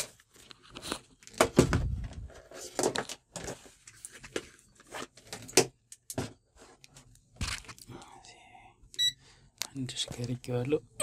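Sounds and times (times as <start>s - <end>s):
multimeter handling knocks and rustles: 7.0s - 7.8s.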